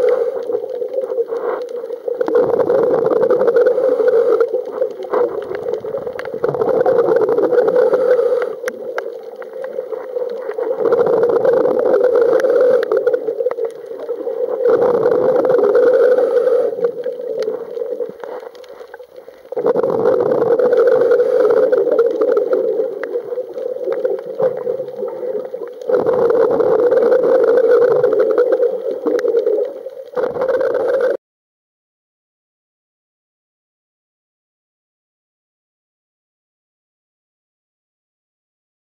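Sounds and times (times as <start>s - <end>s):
regulator exhaust bubbles underwater: 0.0s - 18.3s, 19.0s - 31.1s.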